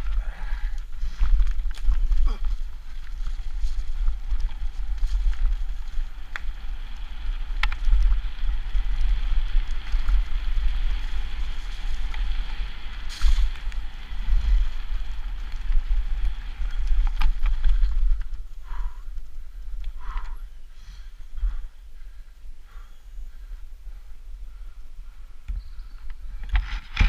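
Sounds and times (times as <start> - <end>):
wind buffeting microphone: 0.0 - 27.0
bike knocks and rattles: 26.3 - 27.0.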